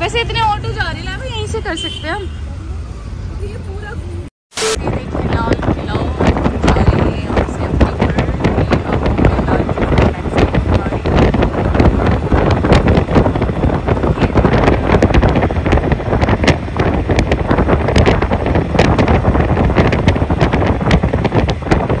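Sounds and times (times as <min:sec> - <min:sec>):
vehicle and road noise: 0:00.0 - 0:22.0
wind buffeting microphone: 0:04.8 - 0:22.0.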